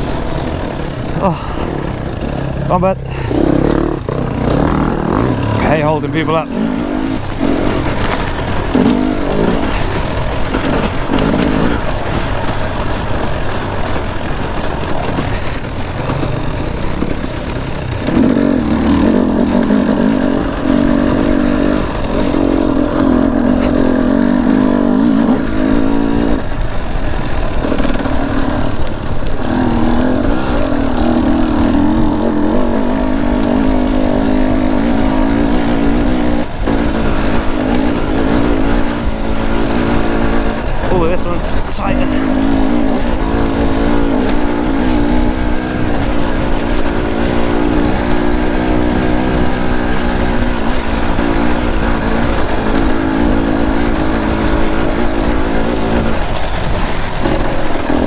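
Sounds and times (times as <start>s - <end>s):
two-stroke dirt bike engine revving: 0.0s - 58.0s.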